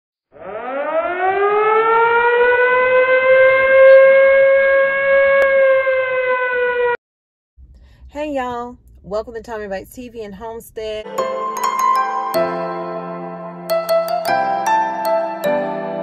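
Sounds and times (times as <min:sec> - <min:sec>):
warning siren winding up: 0:00.3 - 0:07.0.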